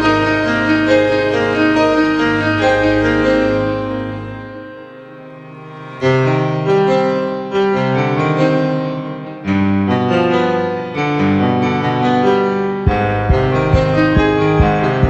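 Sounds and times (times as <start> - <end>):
piano music: 0.0 - 15.0
low beat: 12.9 - 15.0.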